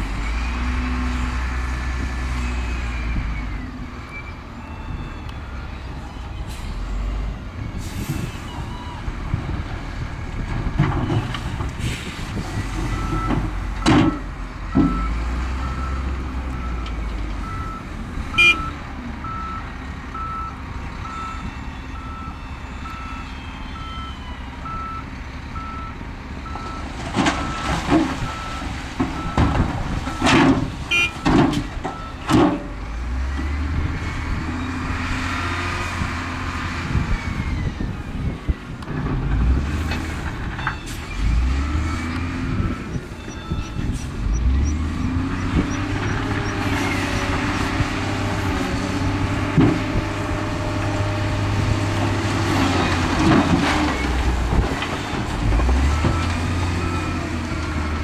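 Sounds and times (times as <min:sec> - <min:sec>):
diesel engines running: 0:00.0 - 0:58.0
reversing alarm beeping: 0:14.0 - 0:16.8, 0:17.4 - 0:26.8, 0:40.6 - 0:47.3.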